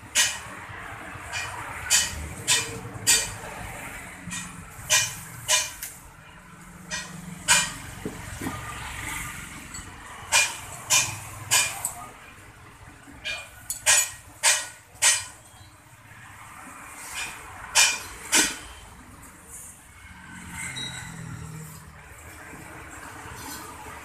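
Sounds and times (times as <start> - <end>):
sharp metal knocks: 0.0 - 0.6, 1.2 - 3.5, 4.2 - 6.0, 6.8 - 8.7, 9.7 - 12.0, 13.1 - 15.5, 17.2 - 18.8.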